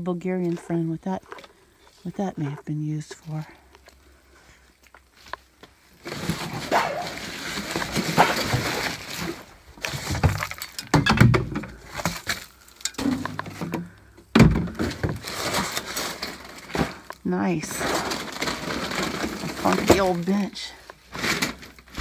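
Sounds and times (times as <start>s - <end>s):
junk knocking and clattering: 9.8s - 12.3s, 12.9s - 15.3s.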